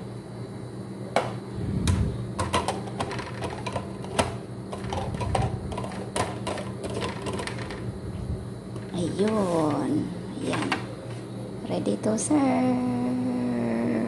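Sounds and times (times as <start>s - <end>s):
steady low hum: 0.0s - 14.0s
metal lid clicking and tapping: 2.4s - 7.8s.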